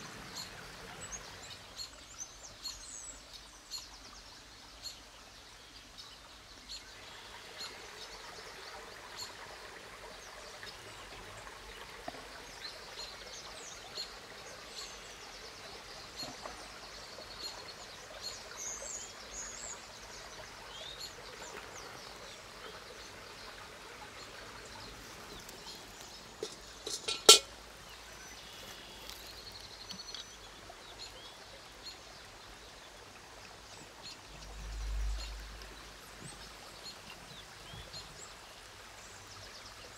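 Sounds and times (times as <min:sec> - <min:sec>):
running water: 0:00.0 - 0:39.9
birds chirping: 0:16.0 - 0:33.0.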